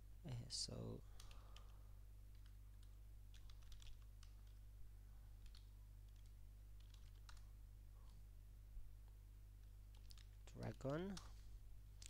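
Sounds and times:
steady low hum: 0:00.0 - 0:12.0
faint keyboard typing: 0:01.0 - 0:04.7, 0:05.3 - 0:08.2, 0:09.0 - 0:12.0.

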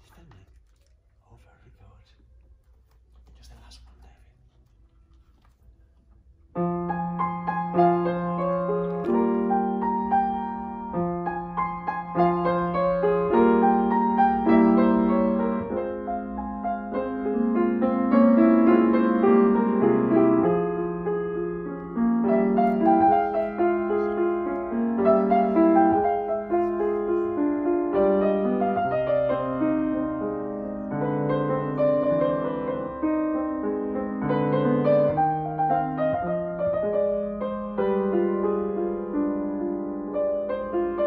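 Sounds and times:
grand piano playing: 0:06.4 - 0:41.0.

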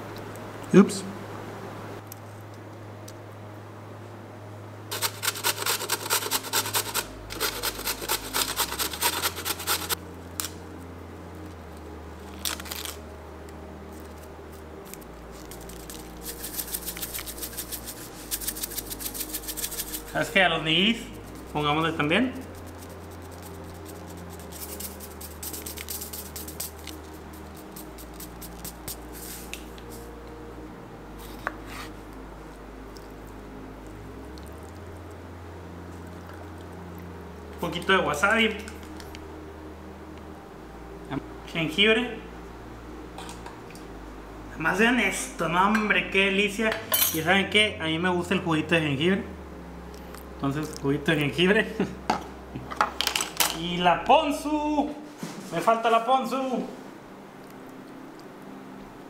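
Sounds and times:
low hum: 0:00.0 - 0:55.2
quiet background music: 0:00.0 - 0:59.0
scratchy rasping of food by hand: 0:04.9 - 0:10.0, 0:15.3 - 0:20.2, 0:22.4 - 0:29.5.

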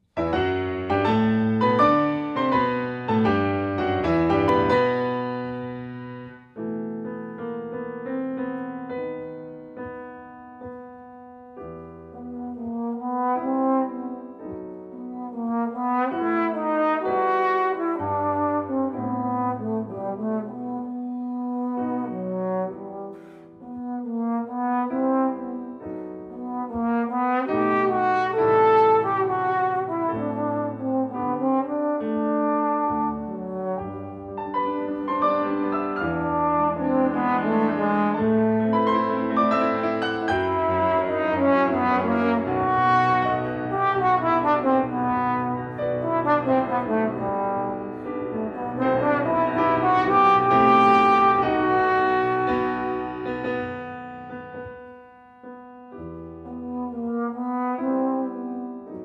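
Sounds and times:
grand piano chords: 0:00.0 - 0:59.0
trombone melody: 0:00.3 - 0:05.7, 0:12.1 - 0:54.8, 0:56.4 - 0:59.0.

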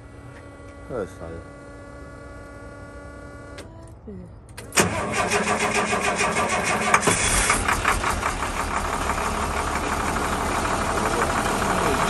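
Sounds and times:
diesel engine starting and idling: 0:04.5 - 0:12.0.

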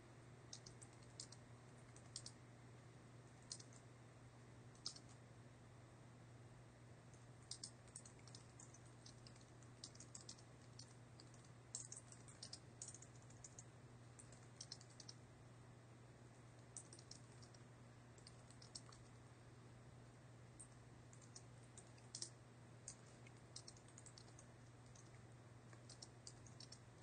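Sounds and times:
typing on computer keyboard: 0:00.5 - 0:02.4, 0:03.4 - 0:03.8, 0:04.8 - 0:05.2, 0:07.4 - 0:15.2, 0:16.7 - 0:17.6, 0:18.2 - 0:19.1, 0:20.6 - 0:25.1, 0:25.7 - 0:26.9.

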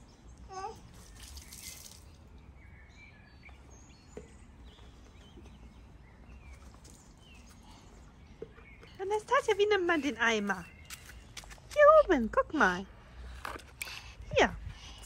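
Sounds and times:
low wind rumble: 0:12.8 - 0:15.0.

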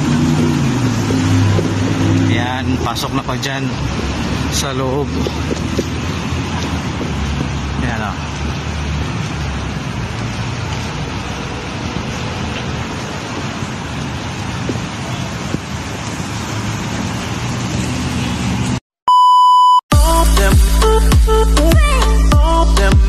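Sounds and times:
street traffic noise: 0:00.0 - 0:18.9, 0:19.9 - 0:23.0
electronic beep: 0:19.1 - 0:19.8
music: 0:19.9 - 0:23.0.

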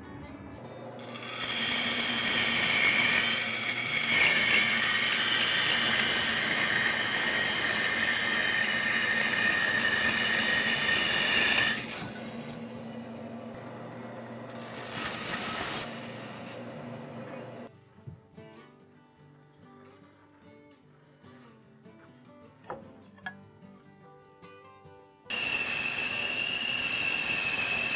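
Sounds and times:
bandsaw ripping through wood: 0:01.0 - 0:12.6, 0:14.5 - 0:16.4, 0:25.3 - 0:27.9.

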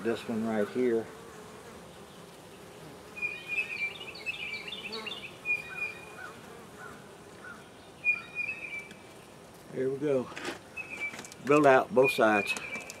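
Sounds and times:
bees humming: 0:00.0 - 0:10.0, 0:10.6 - 0:13.0
bird chirping and whistling: 0:08.0 - 0:08.9, 0:10.8 - 0:11.3.

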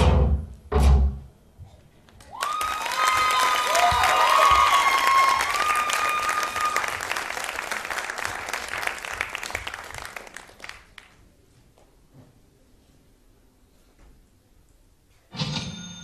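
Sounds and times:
audience applauding: 0:02.1 - 0:11.2.

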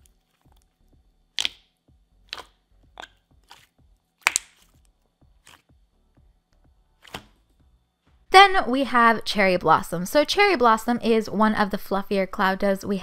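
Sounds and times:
slime squishing with wet pops: 0:01.4 - 0:05.7.

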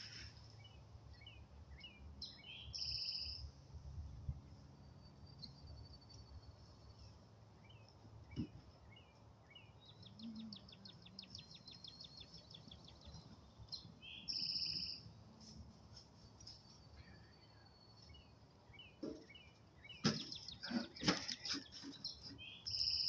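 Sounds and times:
songbirds chirping and trilling: 0:00.0 - 0:23.0.

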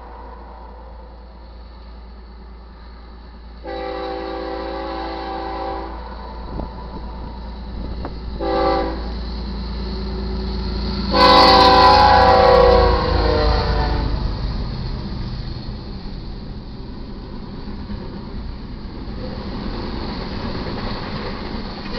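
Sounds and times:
train rumbling: 0:00.0 - 0:21.9
locomotive air horn blasts: 0:03.6 - 0:06.2, 0:08.4 - 0:09.1, 0:11.1 - 0:14.2.

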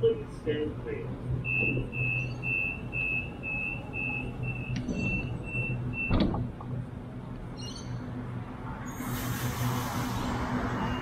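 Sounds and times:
low train hum: 0:00.0 - 0:11.0
rapid high warning beeps: 0:01.4 - 0:06.2
sliding doors shutting with knock: 0:06.0 - 0:06.7.

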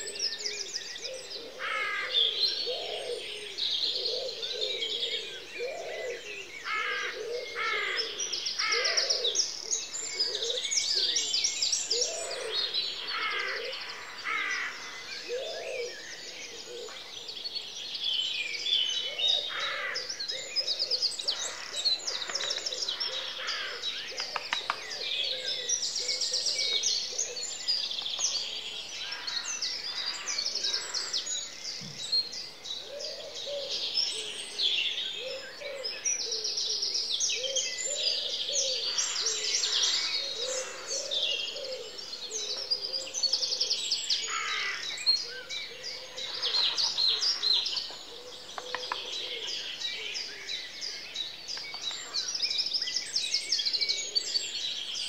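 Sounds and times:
songbirds trilling chorus: 0:00.0 - 0:55.0.

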